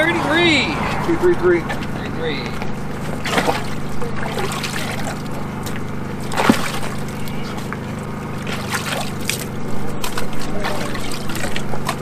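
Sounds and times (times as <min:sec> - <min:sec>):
steady low hum: 0:00.0 - 0:12.0
water sloshing in a tub: 0:00.6 - 0:12.0
sharp splash: 0:03.1 - 0:07.5, 0:08.4 - 0:12.0.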